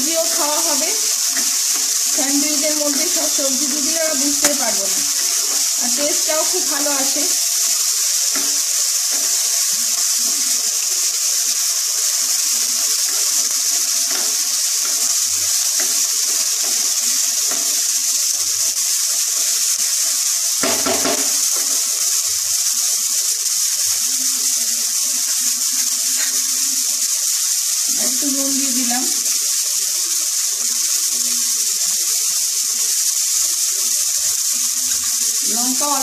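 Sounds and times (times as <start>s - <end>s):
wooden spatula stirring: 0.0s - 19.9s
vegetables sizzling in oil: 0.0s - 36.0s.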